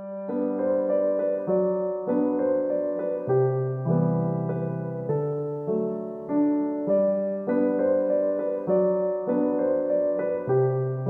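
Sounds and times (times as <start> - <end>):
calm piano chords: 0.0 - 11.0.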